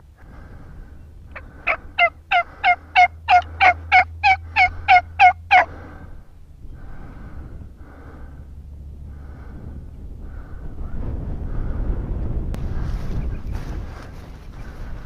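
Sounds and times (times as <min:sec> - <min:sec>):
wind rumble on microphone: 0:00.0 - 0:15.0
turkey calls: 0:01.3 - 0:05.9.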